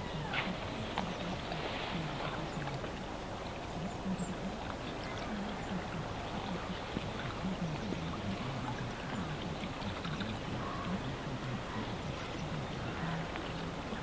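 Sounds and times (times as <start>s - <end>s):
water birds calling: 0.0s - 14.0s
muffled radio voice: 3.7s - 14.0s.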